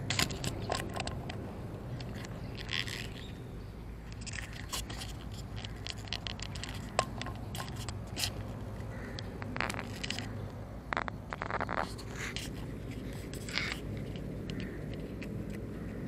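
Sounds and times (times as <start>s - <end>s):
handling clicks: 4.0s - 16.0s.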